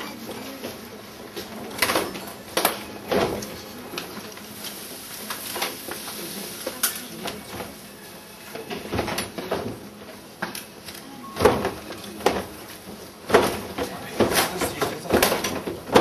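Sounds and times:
sharp knocks and clatters: 11.4s - 16.0s.

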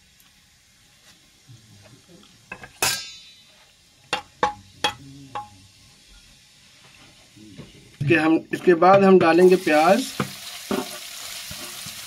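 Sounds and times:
metal clinking on frying pan: 2.6s - 3.4s.

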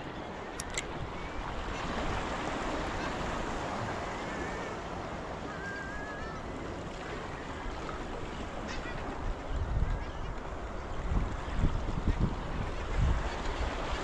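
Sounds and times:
ocean surf against rocks: 0.0s - 9.3s
faint bird calls: 3.8s - 10.9s.

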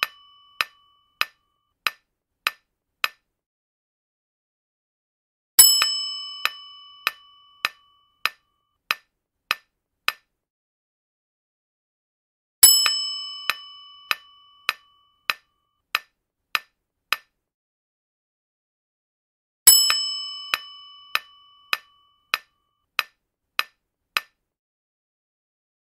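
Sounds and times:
clock-like ticks: 0.0s - 3.2s.

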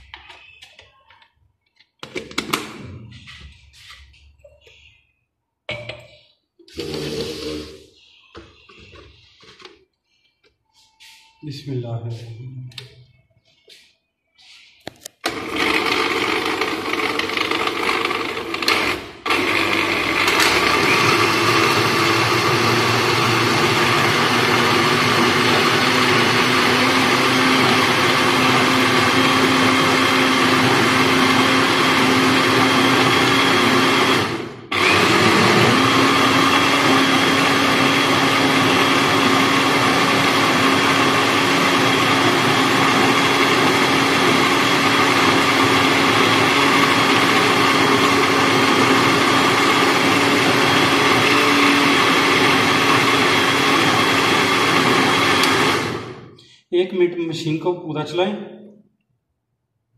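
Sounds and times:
blender motor whine: 6.7s - 7.8s, 15.2s - 56.3s.

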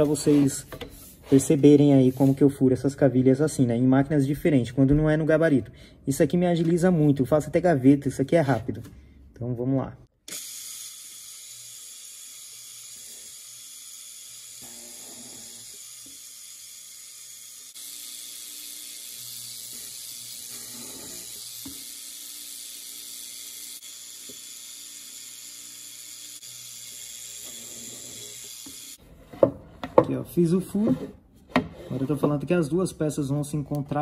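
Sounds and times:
drill boring into wood: 10.3s - 29.0s.

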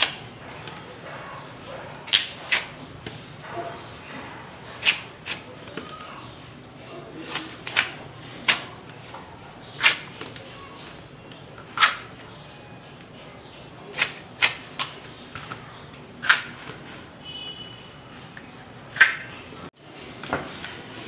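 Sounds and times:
blade slicing hard fruit: 7.2s - 8.8s, 9.8s - 10.4s, 13.9s - 15.1s, 16.2s - 16.8s.

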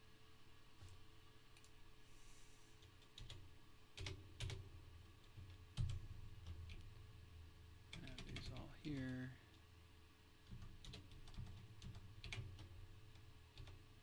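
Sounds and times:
computer keyboard keystrokes: 2.8s - 3.4s, 4.0s - 4.6s, 5.2s - 6.9s, 7.9s - 9.6s, 10.4s - 13.8s.

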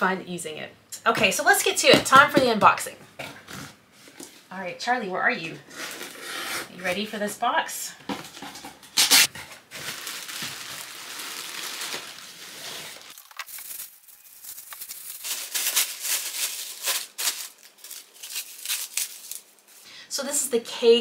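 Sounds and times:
plastic wrapping crinkling: 9.0s - 19.8s.

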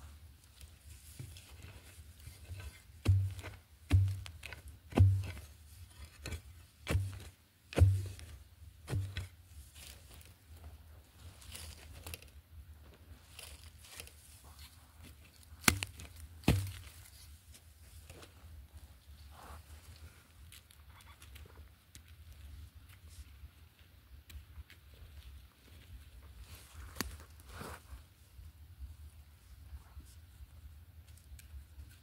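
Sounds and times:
hands scraping loose earth: 0.0s - 21.4s
blade chopping into soil: 3.0s - 5.5s, 6.2s - 8.3s, 8.9s - 9.3s, 15.6s - 16.9s.

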